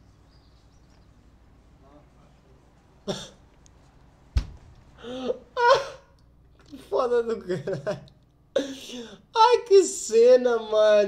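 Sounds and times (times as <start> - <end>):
sharp thump: 4.4 - 4.7
man laughing stifled: 5.0 - 6.2.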